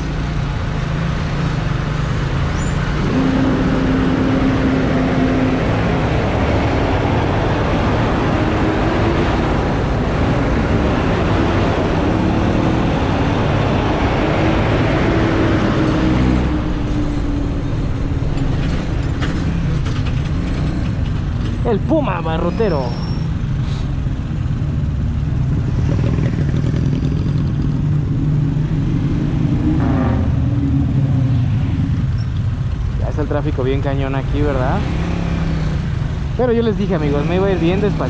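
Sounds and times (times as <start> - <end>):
surrounding traffic noise: 0.0 - 38.0
motorcycle engine running: 24.8 - 28.5.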